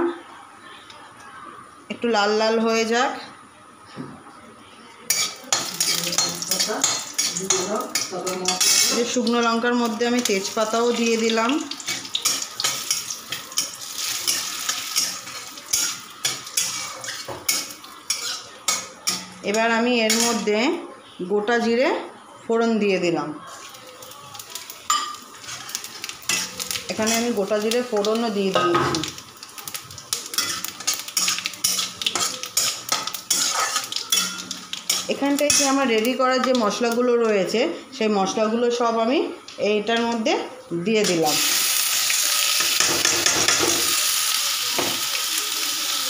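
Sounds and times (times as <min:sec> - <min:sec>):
metal spatula scraping pan: 0:05.1 - 0:09.2, 0:11.8 - 0:18.9, 0:30.3 - 0:35.8
spices sizzling in hot oil: 0:05.1 - 0:20.5, 0:23.4 - 0:37.1, 0:41.0 - 0:46.0.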